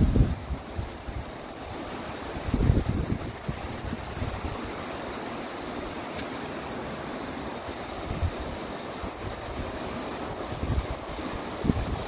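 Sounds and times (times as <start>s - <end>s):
wind buffeting microphone: 0.0s - 5.1s, 7.8s - 12.0s
mountain stream rushing: 0.0s - 12.0s.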